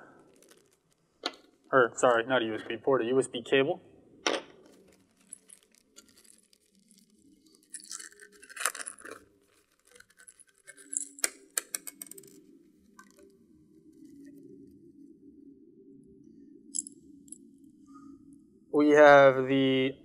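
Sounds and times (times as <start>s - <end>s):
plastic bags crinkling: 0.0s - 1.7s, 4.6s - 12.3s.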